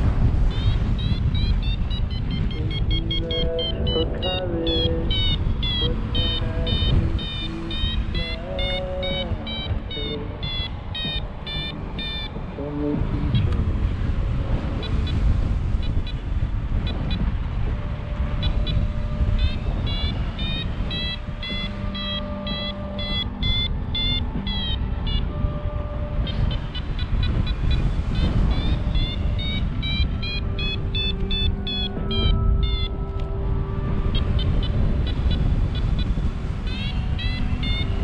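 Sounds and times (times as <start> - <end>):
wind rushing across microphone: 0.0 - 38.0
variometer beeping short tones: 0.5 - 12.3, 18.4 - 25.2, 26.3 - 33.0, 34.1 - 38.0.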